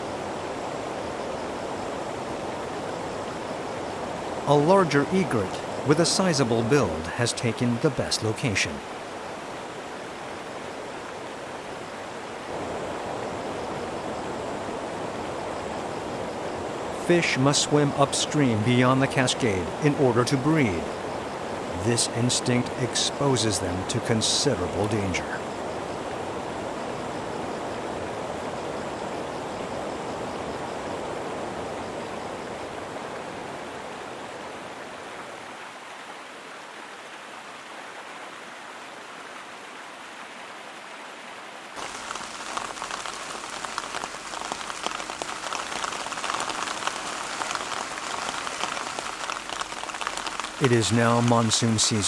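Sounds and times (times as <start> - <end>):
heavy rain falling: 0.0 - 28.9, 41.7 - 52.0
water splashing down a cascade: 4.5 - 8.9, 17.0 - 21.0, 41.8 - 52.0.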